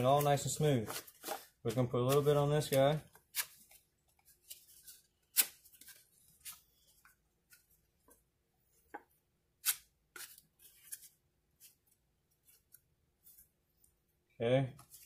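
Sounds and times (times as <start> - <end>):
putty knife scraping joint compound: 9.6 - 13.6.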